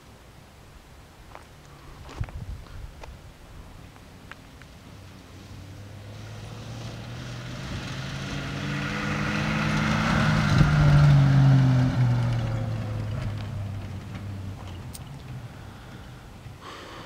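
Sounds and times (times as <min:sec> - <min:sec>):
tyres on loose dirt: 0:01.2 - 0:17.0
car engine passing by: 0:04.8 - 0:16.6.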